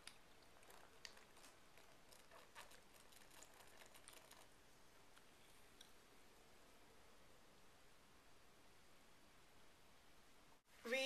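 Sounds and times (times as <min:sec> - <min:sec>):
person gulping a drink: 0:00.0 - 0:04.5.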